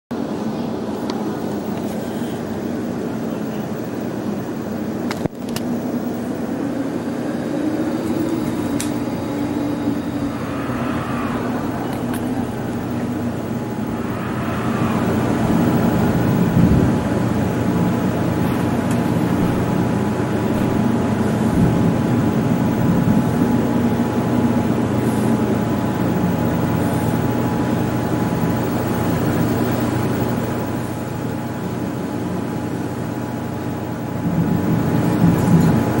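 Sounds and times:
strong wind roaring over microphone: 0:04.6 - 0:30.6.

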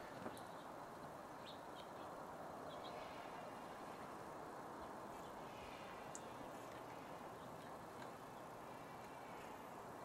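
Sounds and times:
faint background hiss: 0:00.0 - 0:10.0.

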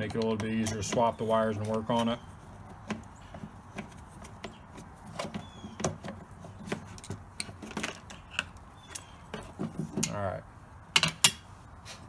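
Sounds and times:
light clicks and knocks: 0:00.0 - 0:01.9.

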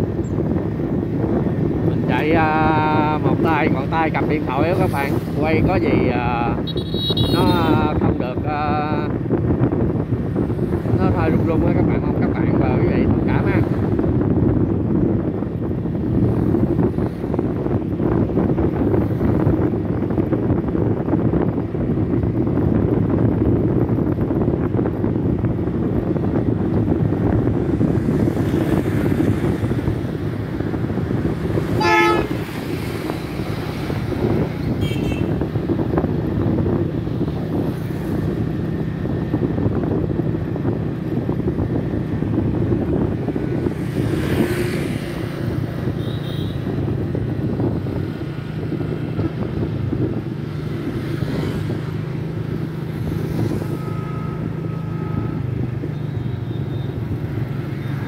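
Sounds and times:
road noise: 0:00.0 - 0:58.0
vehicle horn: 0:06.6 - 0:07.8, 0:31.7 - 0:32.6, 0:34.8 - 0:35.3.

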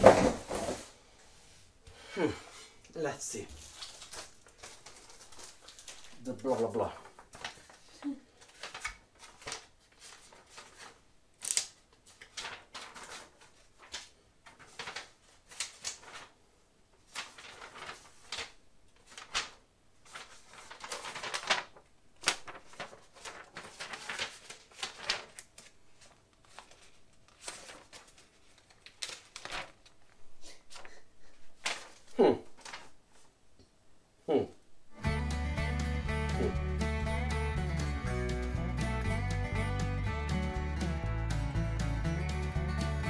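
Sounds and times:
paper pages rustling: 0:03.3 - 0:33.3.

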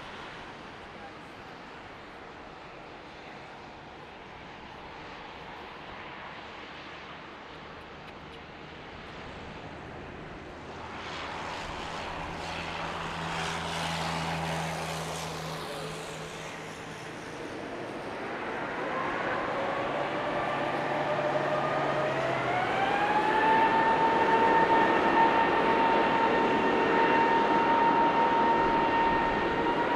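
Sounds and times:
jet engines rushing: 0:07.9 - 0:29.9.

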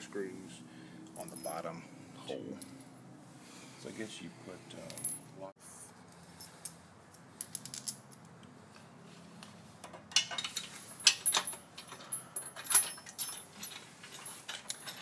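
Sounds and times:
small metal parts clinking: 0:01.2 - 0:01.7, 0:04.9 - 0:05.3, 0:06.3 - 0:08.3, 0:09.8 - 0:15.0.

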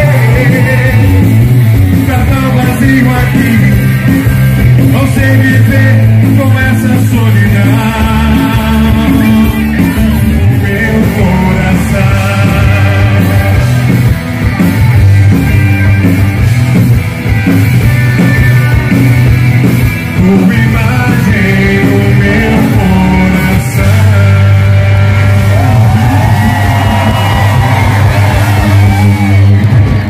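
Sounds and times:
person singing: 0:00.0 - 0:13.9, 0:20.0 - 0:29.4
rock band playing: 0:00.0 - 0:30.0
steady drum beat: 0:00.0 - 0:30.0.

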